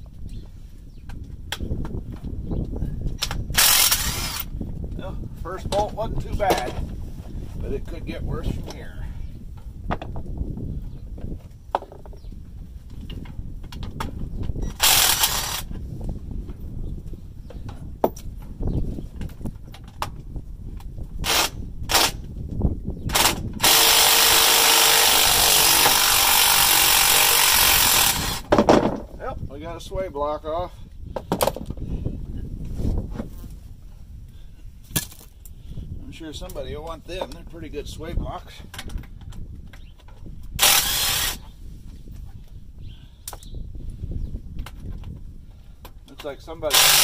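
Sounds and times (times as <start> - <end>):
impact wrench hammering: 23.2 - 28.5.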